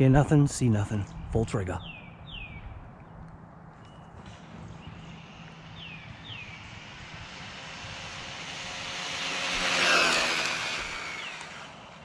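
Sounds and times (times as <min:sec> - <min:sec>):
rc truck motor whine: 0:04.2 - 0:12.0.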